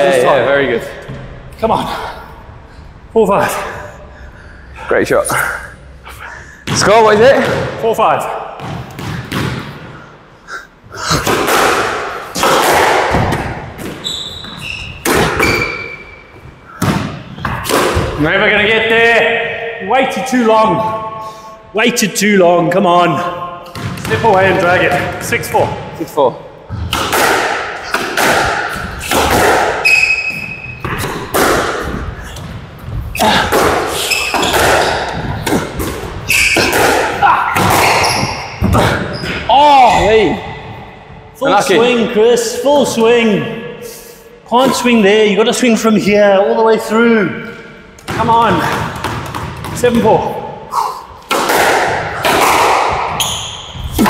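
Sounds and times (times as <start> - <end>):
squash ball hitting racket and walls: 6.6 - 10.3, 10.9 - 18.6, 23.4 - 42.0, 47.4 - 54.0
ball slapping against walls: 8.6 - 9.8, 51.2 - 53.4
shoes squeaking on court floor: 13.8 - 16.6, 29.8 - 31.3, 34.0 - 36.9, 37.5 - 40.8, 52.4 - 54.0.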